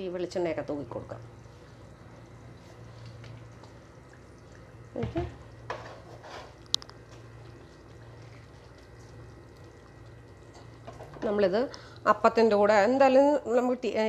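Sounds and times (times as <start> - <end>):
steady low hum: 0.0 - 14.0
pan knocking and scraping on grate: 5.0 - 6.6.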